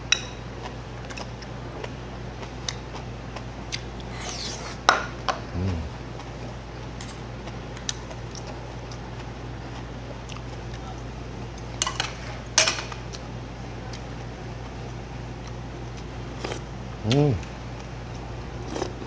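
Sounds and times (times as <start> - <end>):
steady low hum: 0.0 - 19.0
slurping: 4.0 - 4.8
person humming mm: 5.4 - 6.0, 17.0 - 17.5.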